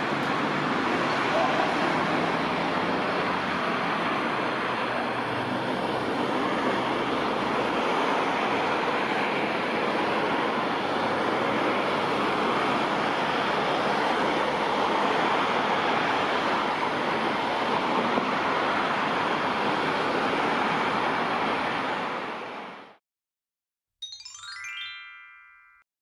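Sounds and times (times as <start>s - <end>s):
rushing outdoor background noise: 0.0s - 23.0s.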